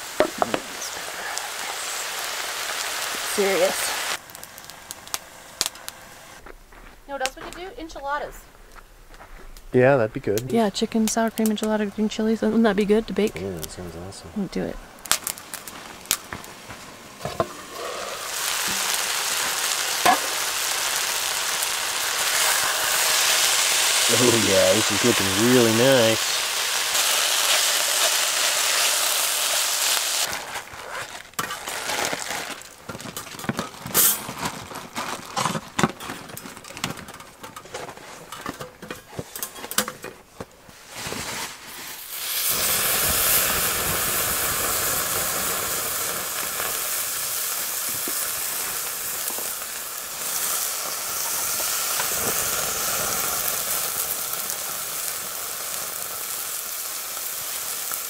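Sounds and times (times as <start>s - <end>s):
food sizzling in a frying pan: 0.0s - 6.4s, 9.8s - 35.2s, 40.9s - 58.0s
crackling and sharp clicks: 4.2s - 6.5s, 15.0s - 16.5s.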